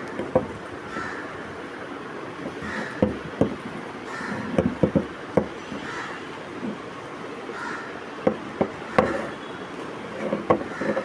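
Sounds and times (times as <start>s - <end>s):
handling clicks and knocks: 0.0s - 0.7s, 2.4s - 6.0s, 6.6s - 6.8s, 8.2s - 9.3s, 10.1s - 11.0s
steady background noise: 0.0s - 11.0s.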